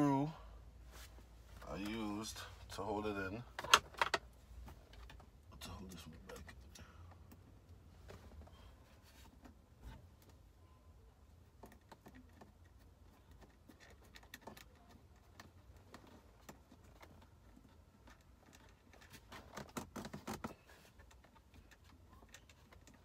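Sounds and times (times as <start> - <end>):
plastic and metal rattling: 3.5 - 5.3, 11.6 - 23.0.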